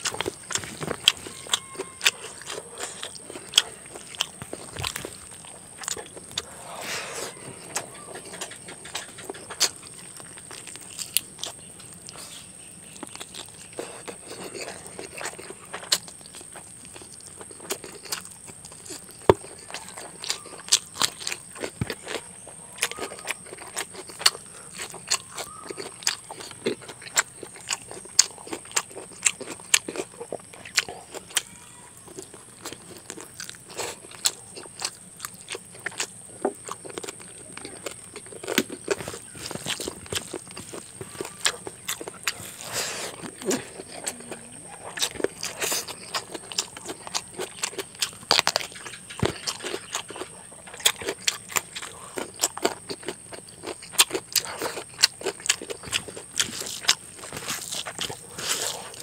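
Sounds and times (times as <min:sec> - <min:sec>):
wet chewing and lip smacking: 0:00.0 - 0:59.0
bone crunching clicks: 0:32.2 - 0:59.0.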